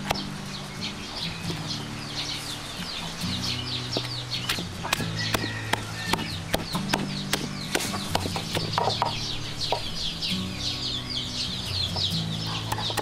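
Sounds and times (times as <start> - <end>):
chickens peeping: 0.0 - 13.0
wooden pestle pounding in mortar: 4.9 - 9.9.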